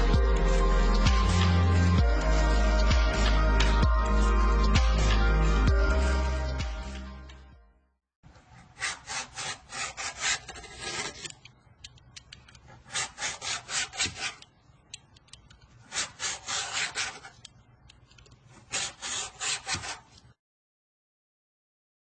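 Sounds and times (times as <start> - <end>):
knife cutting thread: 8.6 - 11.5, 12.6 - 14.6, 15.8 - 17.6, 18.4 - 20.3.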